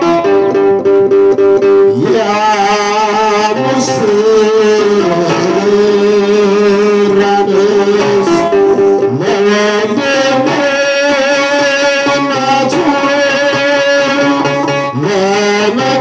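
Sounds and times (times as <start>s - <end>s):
man singing a hymn: 1.9s - 16.0s.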